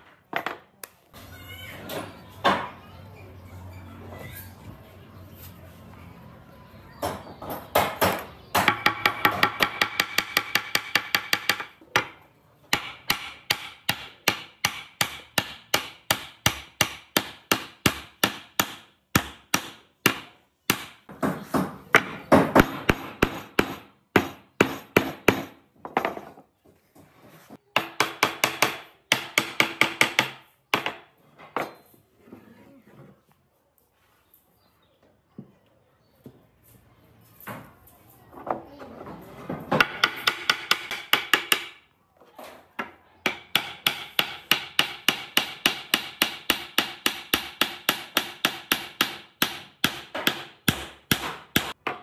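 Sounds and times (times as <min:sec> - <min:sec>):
hammer striking wooden block: 0:07.7 - 0:25.6, 0:27.8 - 0:31.1, 0:39.8 - 0:41.8, 0:43.2 - 0:52.0.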